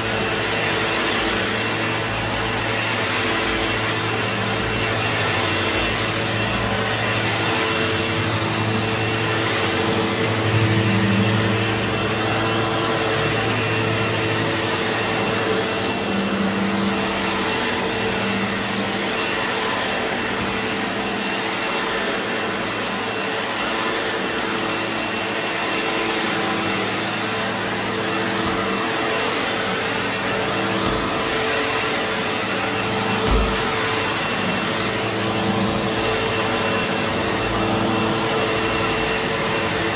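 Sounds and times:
vacuum cleaner on carpet: 0.0s - 39.9s.

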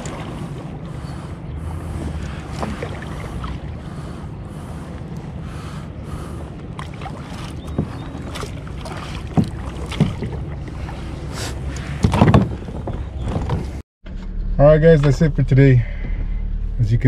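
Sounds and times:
water washing against hull: 0.0s - 13.8s
wind rumbling on microphone: 0.0s - 13.8s
short knocks: 7.6s - 10.6s.

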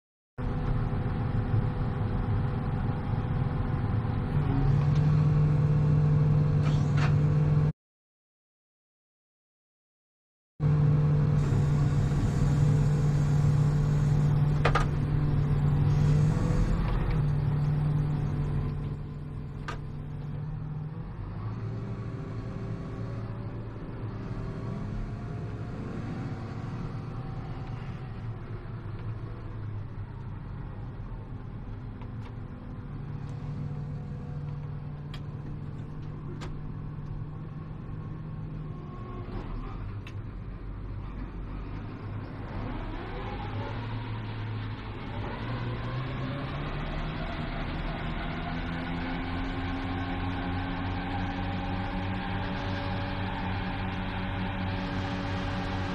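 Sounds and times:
tractor diesel engine running: 10.6s - 20.5s.

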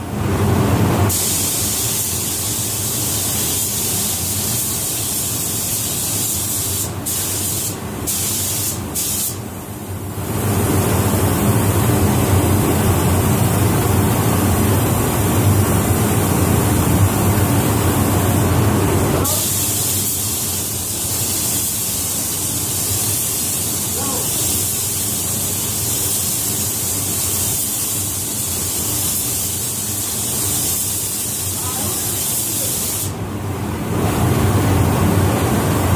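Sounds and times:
paint spray gun hissing: 1.1s - 9.4s, 19.2s - 33.2s.

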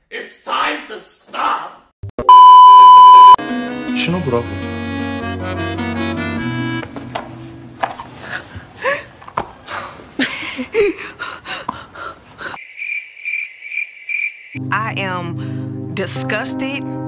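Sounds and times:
music: 3.4s - 7.8s, 14.6s - 17.0s
crickets chirping: 12.4s - 14.6s.

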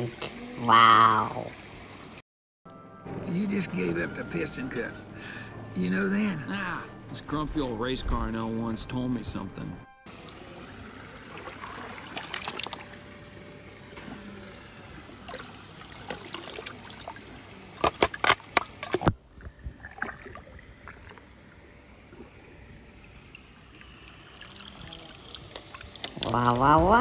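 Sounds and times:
water sloshing and trickling: 10.1s - 27.0s.

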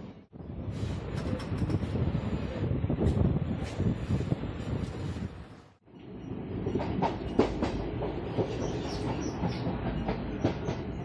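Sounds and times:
train coach rumbling: 0.0s - 11.0s
train wheels clacking on rails: 1.1s - 1.9s, 6.6s - 11.0s.

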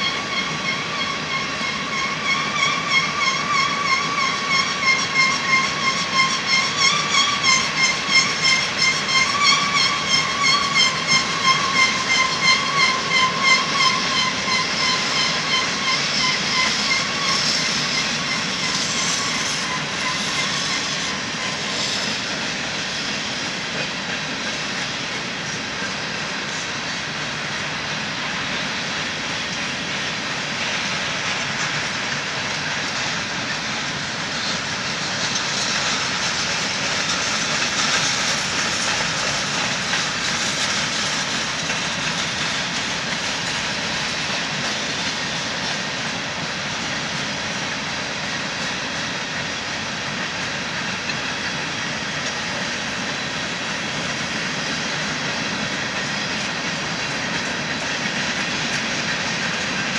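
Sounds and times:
high metallic squeal: 0.0s - 23.6s
train wheels rolling on rails: 0.0s - 59.9s.

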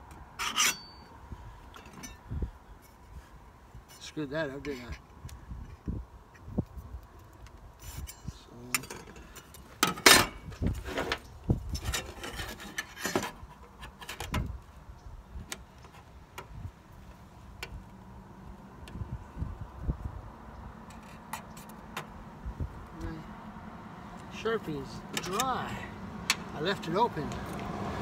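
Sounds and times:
metal scraping and clinking: 0.4s - 1.1s, 7.8s - 14.4s.

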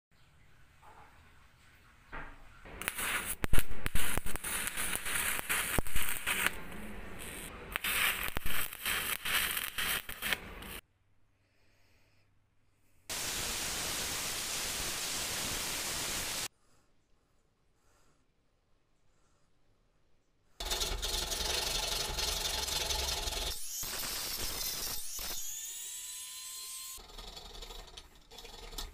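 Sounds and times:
arc welding crackle: 2.7s - 10.8s, 20.6s - 26.3s
steady hiss: 13.1s - 16.5s.

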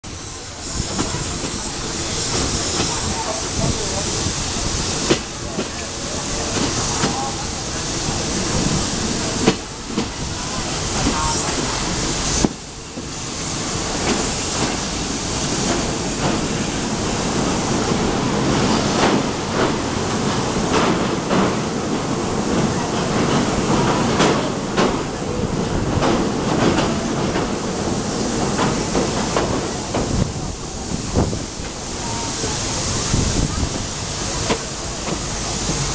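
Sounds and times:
train rolling and wind noise: 0.0s - 35.9s
wheels clacking on rail joints: 13.7s - 32.2s, 33.4s - 35.9s.

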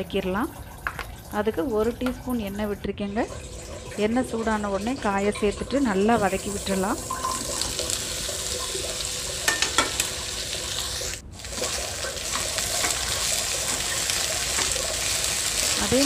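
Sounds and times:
okra sizzling in oil: 4.8s - 16.0s
spatula tapping and scraping pan: 9.5s - 10.2s, 12.3s - 13.9s.

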